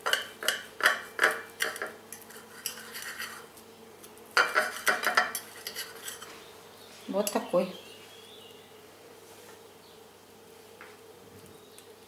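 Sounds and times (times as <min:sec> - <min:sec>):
cutlery scraping against plate: 0:00.0 - 0:03.6, 0:04.4 - 0:06.3.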